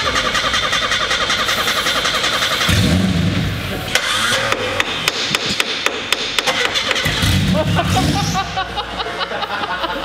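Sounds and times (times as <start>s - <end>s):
starter cranking engine: 0.0s - 3.2s.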